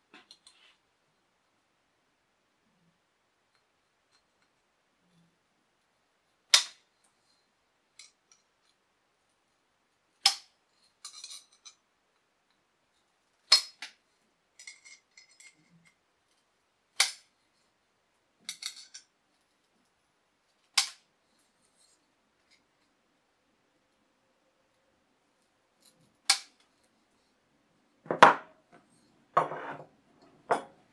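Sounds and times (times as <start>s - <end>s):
small metallic clicks and rattles: 10.2s - 11.8s, 14.6s - 17.3s, 18.4s - 22.9s.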